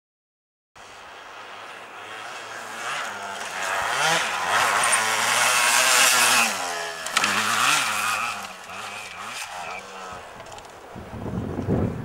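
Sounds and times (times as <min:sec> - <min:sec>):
dirt bike engine revving: 0:00.8 - 0:10.7.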